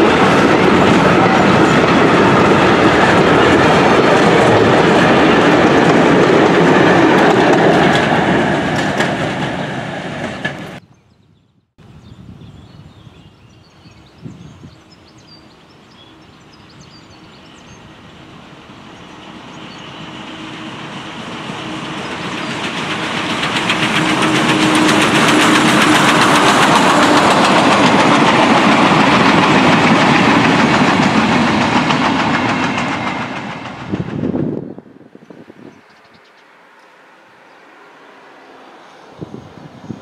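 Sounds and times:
train wheels clattering on rails: 0:00.0 - 0:10.8, 0:19.7 - 0:34.5.

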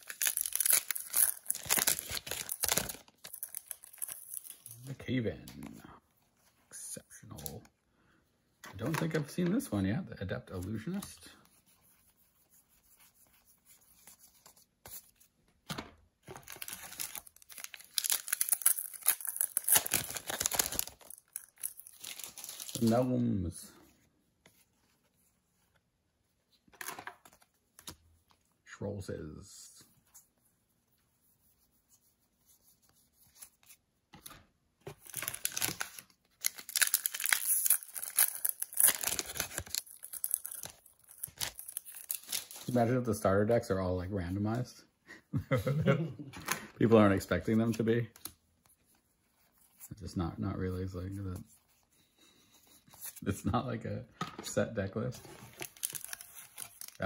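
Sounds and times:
foil wrapper rustling: 0:00.0 - 0:04.6, 0:16.4 - 0:23.1, 0:35.0 - 0:42.8, 0:55.4 - 0:57.0
foil wrapper crinkling: 0:00.0 - 0:04.9, 0:16.4 - 0:23.0, 0:35.0 - 0:42.8, 0:55.4 - 0:57.0.

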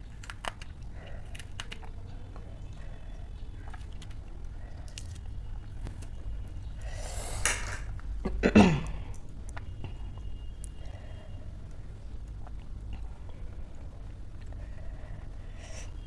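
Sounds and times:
fingers handling food clicks: 0:00.0 - 0:02.0
noisy breath: 0:06.7 - 0:07.8, 0:10.7 - 0:12.0, 0:14.4 - 0:16.0
woman coughing: 0:08.3 - 0:08.9.

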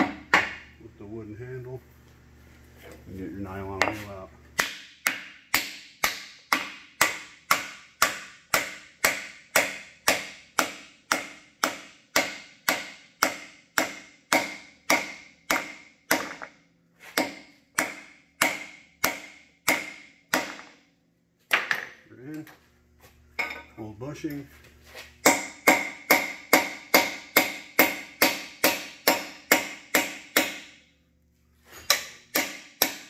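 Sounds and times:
hammer striking a metal rod: 0:04.6 - 0:16.6, 0:17.2 - 0:20.8, 0:25.2 - 0:30.8, 0:31.8 - 0:33.0.

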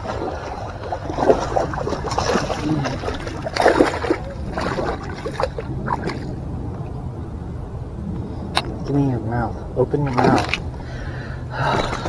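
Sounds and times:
fish splashing in water: 0:00.0 - 0:06.5.

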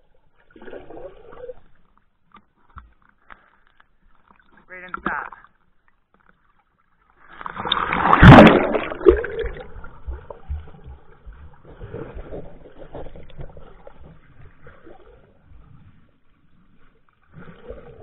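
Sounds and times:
muffled underwater sloshing: 0:00.0 - 0:18.0
water splashing and rushing: 0:07.2 - 0:18.0.

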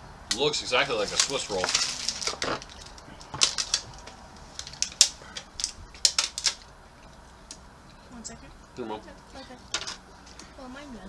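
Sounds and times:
plastic wrapper crinkling: 0:00.8 - 0:06.7.

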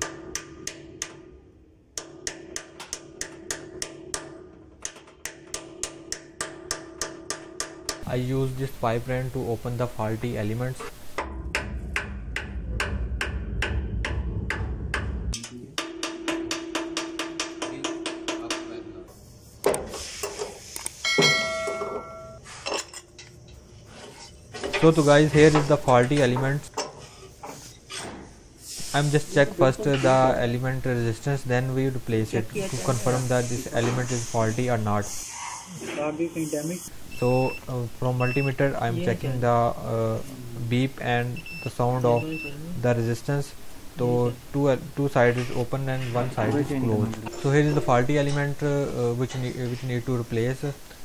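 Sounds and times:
metal tapping and knocking: 0:02.0 - 0:08.1, 0:11.1 - 0:18.8
ringing note: 0:21.0 - 0:22.4.

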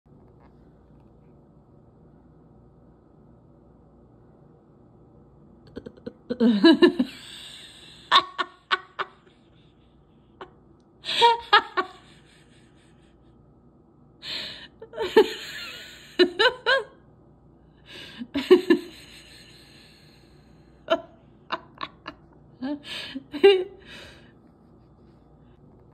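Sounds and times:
woman laughing: 0:05.7 - 0:13.3, 0:14.2 - 0:17.0, 0:17.9 - 0:19.8, 0:20.9 - 0:24.2.

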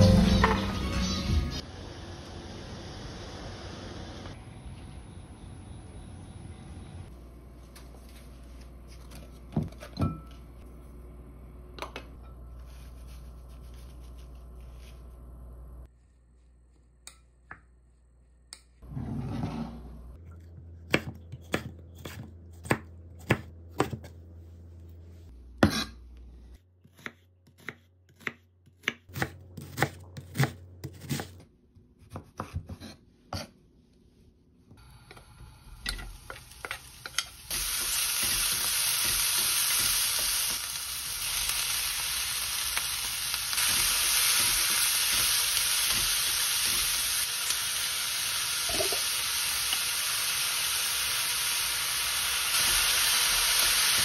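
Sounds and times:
knife chopping on wooden board: 0:20.9 - 0:24.1
meat sizzling in frying pan: 0:36.0 - 0:54.0.

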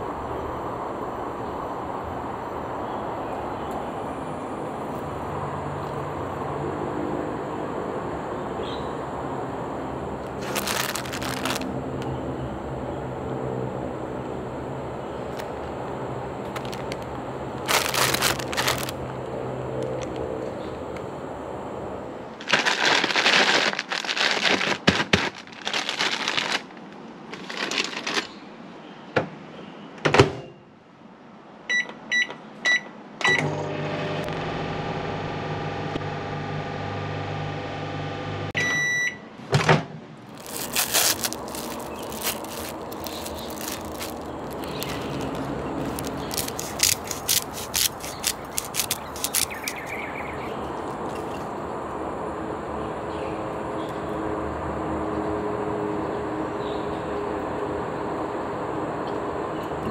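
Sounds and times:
plastic bag crinkling: 0:10.2 - 0:11.8, 0:15.3 - 0:15.6, 0:16.4 - 0:19.1, 0:22.4 - 0:28.4, 0:40.3 - 0:51.0
microwave keypad beeps: 0:31.7 - 0:33.5, 0:38.6 - 0:39.3
microwave oven humming: 0:33.2 - 0:39.2
long beep: 0:38.6 - 0:39.2.

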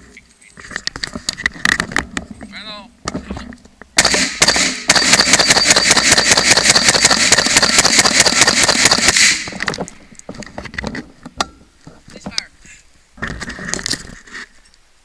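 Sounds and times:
rifle firing rapid shots: 0:04.0 - 0:09.6.

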